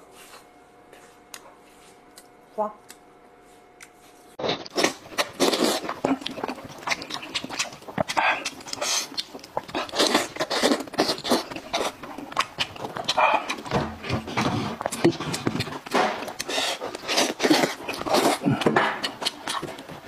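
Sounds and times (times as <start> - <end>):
man chewing and slurping: 4.4 - 20.0.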